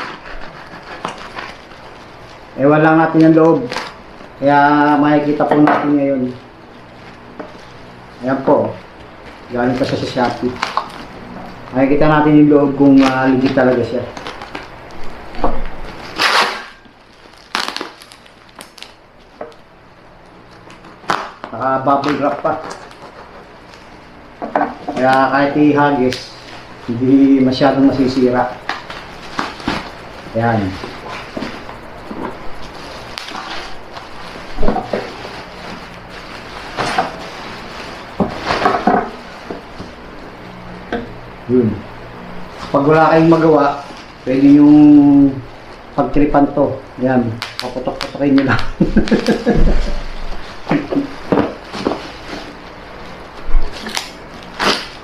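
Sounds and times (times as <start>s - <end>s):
sharp crackles and knocks: 0.0s - 4.4s, 5.4s - 8.2s, 8.8s - 11.8s, 13.1s - 25.3s, 27.9s - 41.2s, 47.4s - 55.0s
packing tape ripping: 0.0s - 11.8s, 12.4s - 23.9s, 24.9s - 40.0s, 47.2s - 55.0s
bubble wrap crinkling: 0.0s - 55.0s
sharp crack: 16.0s - 19.0s, 21.0s - 22.8s, 53.7s - 55.0s.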